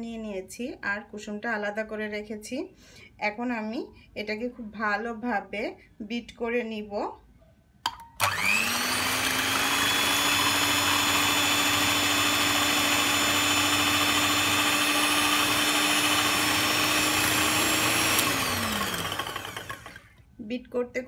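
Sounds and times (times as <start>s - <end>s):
mixer click: 7.8s - 9.4s
electric hand mixer whine: 8.2s - 20.2s.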